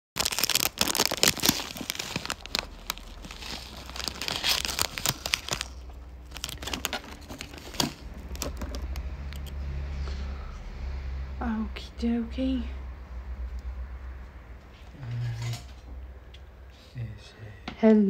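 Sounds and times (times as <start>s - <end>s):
crinkling and rustling: 0.2s - 9.6s.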